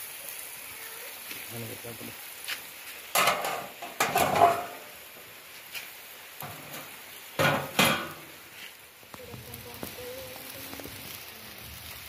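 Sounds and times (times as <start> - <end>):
metal clanking against grill: 3.1 - 4.9, 6.4 - 8.4.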